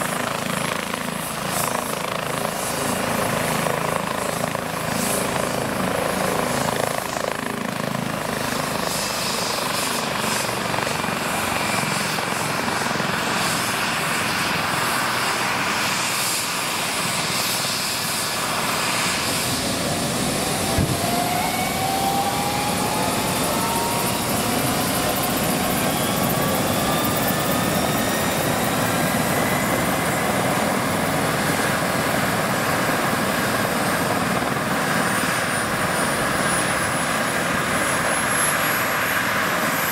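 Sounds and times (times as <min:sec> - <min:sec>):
helicopter turbine and rotor noise: 0:00.0 - 0:39.9
engine whine rising in pitch: 0:19.4 - 0:27.4.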